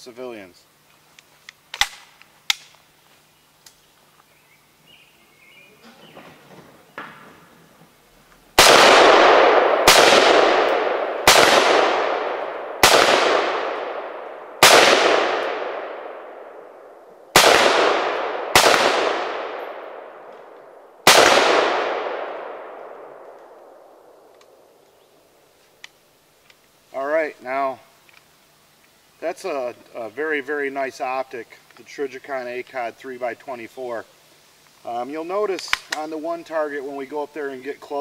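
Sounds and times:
rifle shots with echo: 8.6s - 24.6s.

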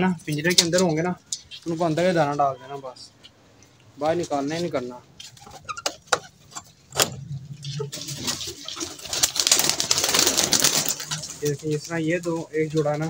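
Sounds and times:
pigeons cooing: 7.0s - 11.4s
pigeons flapping wings: 7.9s - 11.8s.

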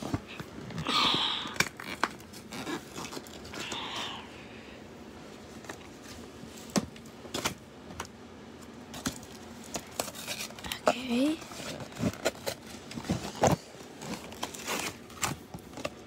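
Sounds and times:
packaging rustle: 8.9s - 16.0s.

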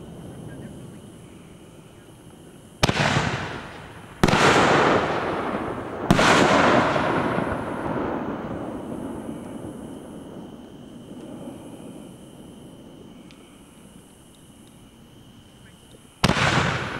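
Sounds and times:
fireworks bangs: 2.2s - 11.6s, 16.2s - 16.9s.

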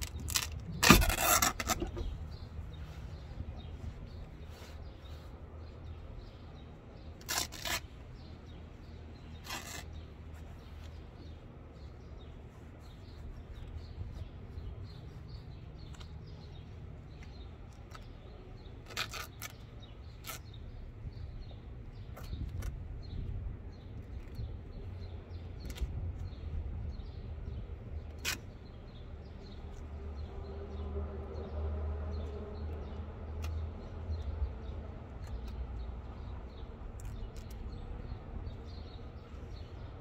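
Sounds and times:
hands rustling fabric and stuffing: 0.0s - 24.9s.

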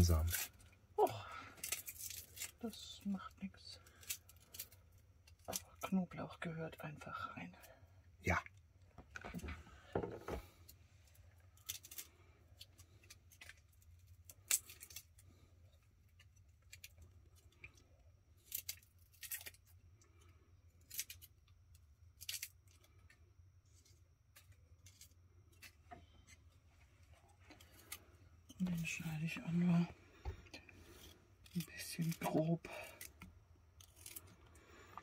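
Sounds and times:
garlic skins crackling: 0.0s - 5.8s, 11.5s - 25.8s, 30.6s - 35.0s.

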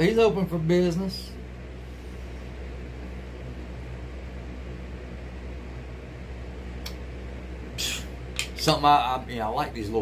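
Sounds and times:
low electrical hum with hiss: 0.0s - 10.0s.

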